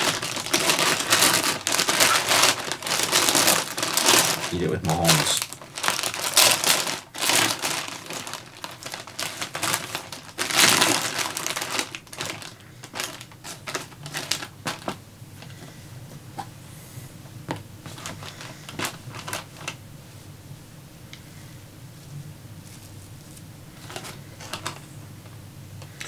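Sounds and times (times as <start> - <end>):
food packaging crinkling: 0.0 - 15.6, 17.8 - 19.8, 22.6 - 24.9.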